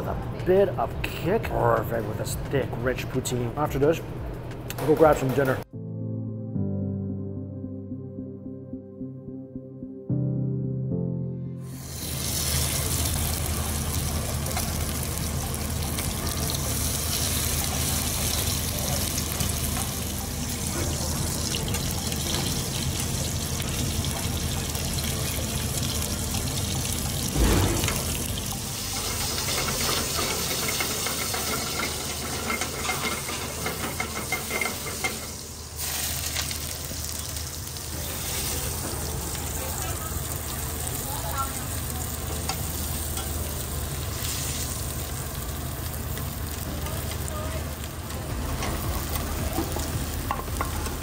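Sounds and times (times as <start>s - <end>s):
fish sizzling in oil: 11.6s - 51.0s.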